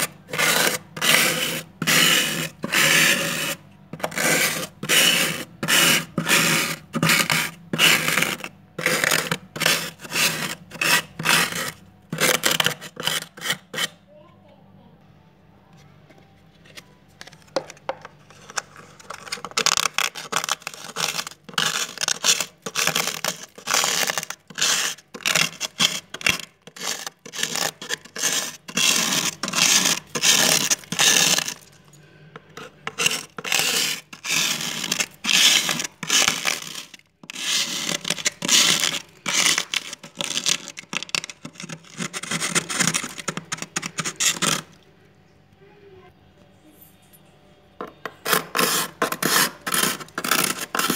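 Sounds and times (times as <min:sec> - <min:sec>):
frost scraped off freezer wall: 0:00.0 - 0:14.0, 0:18.3 - 0:31.8, 0:32.4 - 0:44.8, 0:48.1 - 0:50.9.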